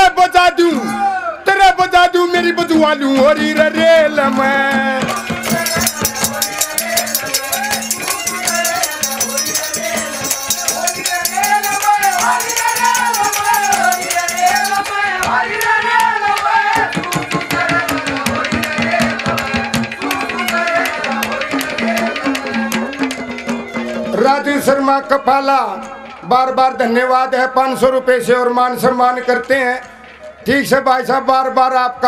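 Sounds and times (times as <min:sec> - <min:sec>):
hand drum: 0:04.5 - 0:24.3
fast rattling percussion: 0:04.9 - 0:24.8
wavering folk melody: 0:05.1 - 0:15.4.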